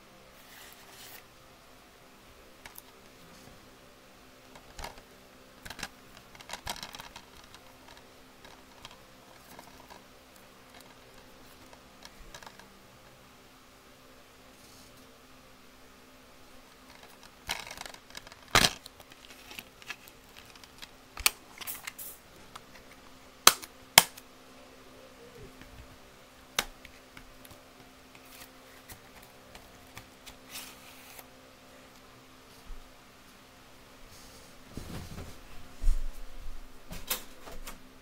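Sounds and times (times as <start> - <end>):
plastic scraping rustles: 5.6 - 10.1, 16.8 - 23.0.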